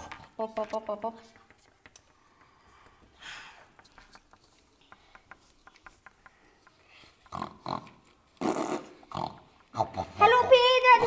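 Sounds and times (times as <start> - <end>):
toys tapping on paper tabletop: 0.1 - 7.4
breathy hiss: 2.2 - 3.8.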